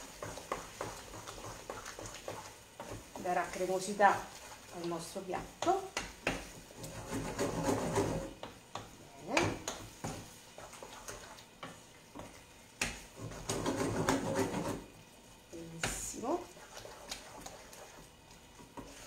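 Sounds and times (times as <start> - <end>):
spoon scraping frying pan: 0.0 - 4.7, 5.4 - 14.9.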